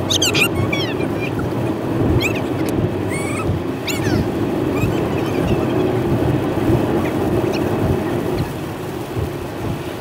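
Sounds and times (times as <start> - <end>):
high squeaky chirps: 0.0 - 6.0
sped-up car driving rumble: 0.0 - 10.0.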